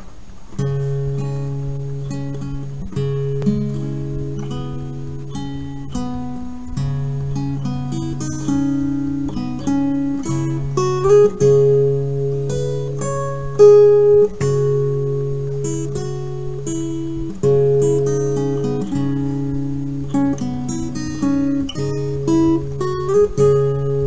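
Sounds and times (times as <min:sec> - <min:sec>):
plucked guitar melody: 0:00.5 - 0:24.0.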